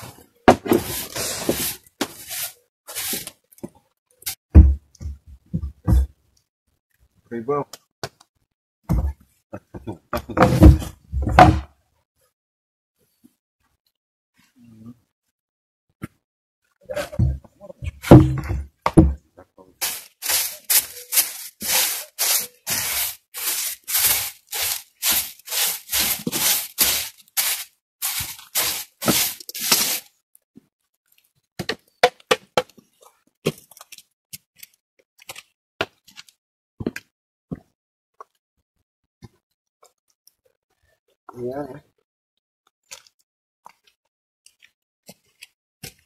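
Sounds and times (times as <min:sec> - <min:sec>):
heavy wooden thuds: 0:17.2 - 0:19.2.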